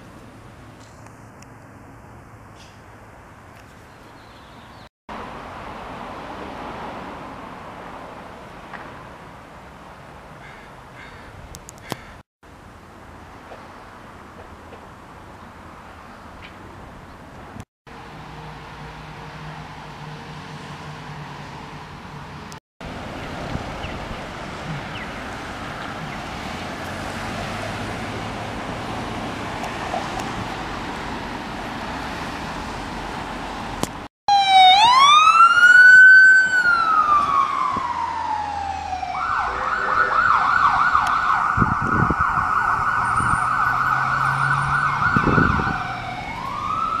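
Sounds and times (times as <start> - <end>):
street traffic: 0.0 - 47.0
ambulance siren wail and yelp: 34.3 - 47.0.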